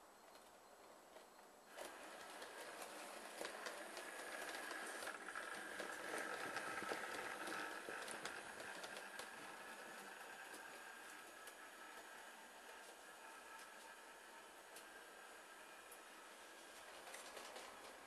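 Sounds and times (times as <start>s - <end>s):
train wheels clicking over rail joints: 1.7s - 12.1s.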